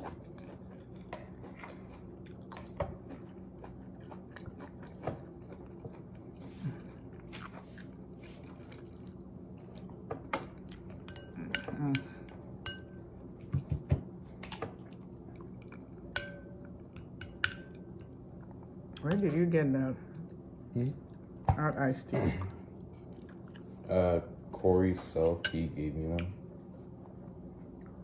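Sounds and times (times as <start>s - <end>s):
chewing and mouth sounds: 0.0s - 11.6s, 14.7s - 19.1s, 22.4s - 23.8s
faint steady hum: 0.0s - 28.0s.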